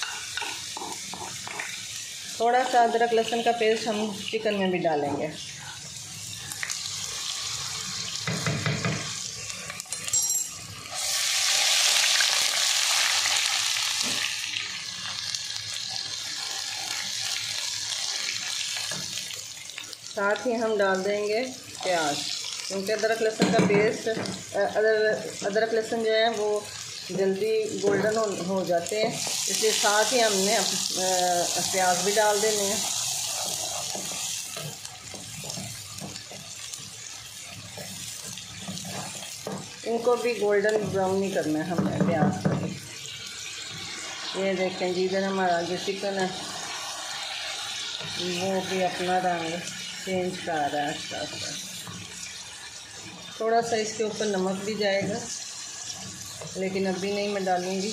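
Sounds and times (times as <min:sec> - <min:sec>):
spices sizzling in hot oil: 0:00.0 - 0:57.9
utensil scraping pan: 0:37.7 - 0:39.6.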